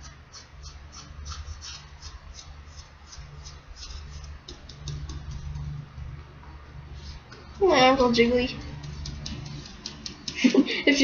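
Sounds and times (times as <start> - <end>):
paintbrush scratching: 0.0 - 5.9, 8.2 - 10.3
low steady hum: 0.0 - 11.0.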